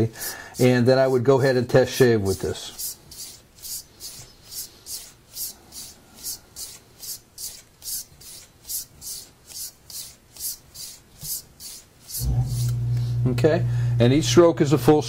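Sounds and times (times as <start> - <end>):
razor swishing on strop: 2.3 - 13.3.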